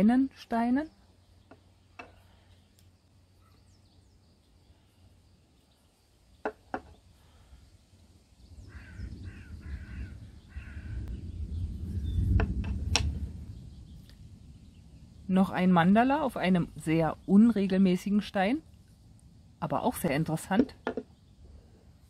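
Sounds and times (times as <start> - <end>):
harsh bird calls: 8.4 - 12.6
low rumble: 8.5 - 16.6.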